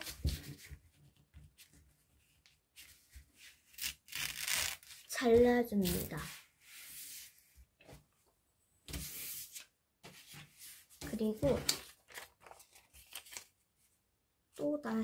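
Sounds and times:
paper rustling and tearing: 0:03.6 - 0:05.1, 0:11.4 - 0:13.5.

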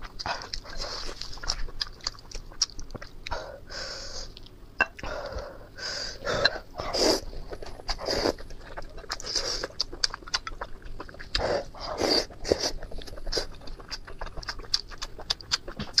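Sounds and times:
wet chewing: 0:00.0 - 0:03.5, 0:06.4 - 0:16.0
slurping: 0:06.2 - 0:16.0.

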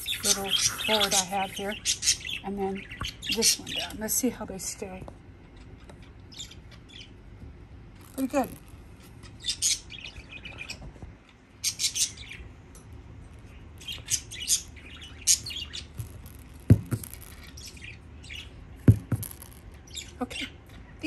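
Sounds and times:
suction toys squeaking: 0:00.0 - 0:02.2
sharp knocks: 0:18.9 - 0:19.4.

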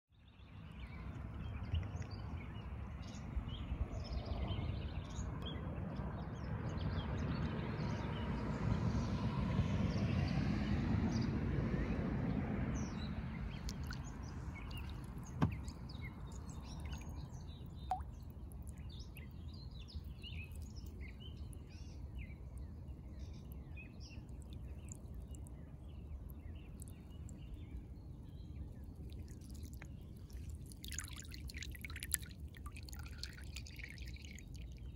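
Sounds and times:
small birds chirping: 0:12.8 - 0:34.9.

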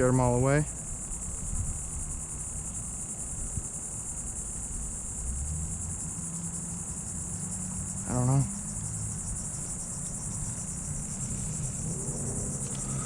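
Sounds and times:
insect chorus trilling: 0:00.0 - 0:13.0
low rumble: 0:10.6 - 0:13.0.

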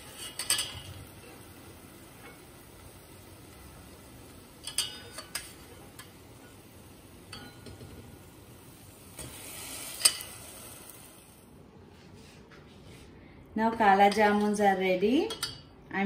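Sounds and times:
ladle clinking against steel pot: 0:04.6 - 0:06.1, 0:07.3 - 0:07.9.

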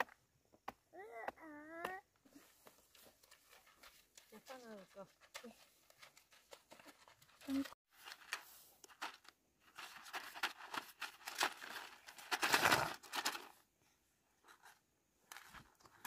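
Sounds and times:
rustling and crinkling: 0:02.3 - 0:13.7, 0:14.4 - 0:16.0.

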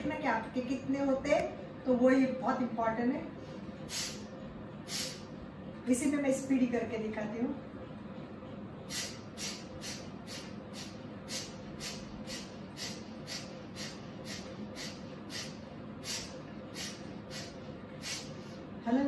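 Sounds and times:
forceful nasal exhalations: 0:03.8 - 0:05.3, 0:08.9 - 0:18.6.

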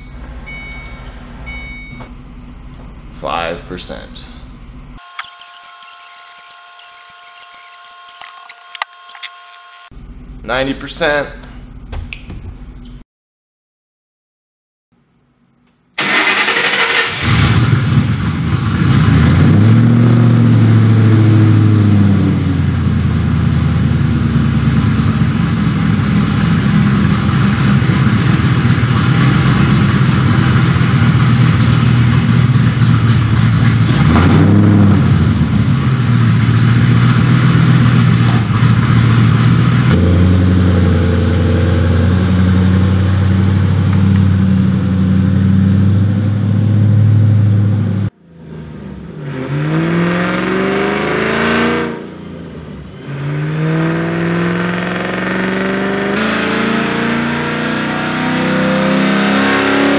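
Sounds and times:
car engine starting and idling: 0:00.0 - 0:13.0, 0:16.0 - 0:50.9
engine revving: 0:16.0 - 0:59.9.

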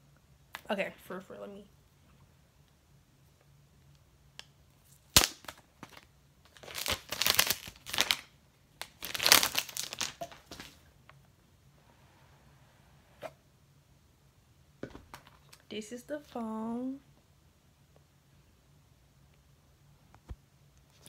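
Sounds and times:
plastic wrapping tearing and crumpling: 0:04.8 - 0:10.8.

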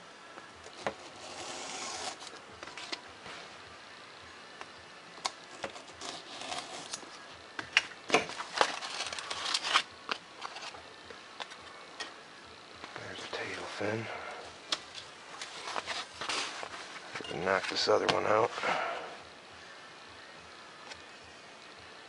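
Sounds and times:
craft knife cutting foam board: 0:00.8 - 0:02.4, 0:05.6 - 0:07.0.

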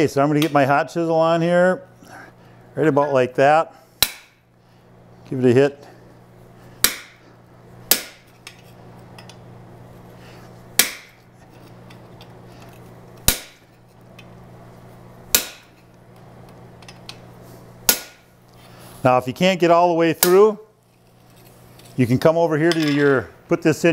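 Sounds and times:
hammer striking chisel on hot metal: 0:04.0 - 0:04.5, 0:06.8 - 0:09.4, 0:10.7 - 0:12.4, 0:13.2 - 0:14.3, 0:15.3 - 0:17.2, 0:17.8 - 0:18.3, 0:20.2 - 0:20.5.

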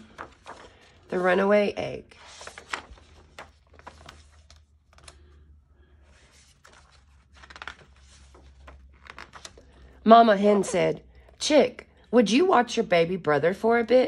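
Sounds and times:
page turning: 0:00.0 - 0:01.5, 0:02.1 - 0:05.4, 0:06.1 - 0:09.9.

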